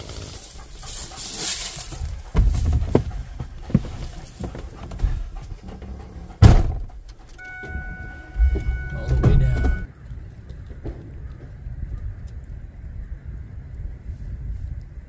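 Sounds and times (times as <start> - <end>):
engine cranking and running: 0.0 - 9.8
steady warning tone: 7.0 - 9.9.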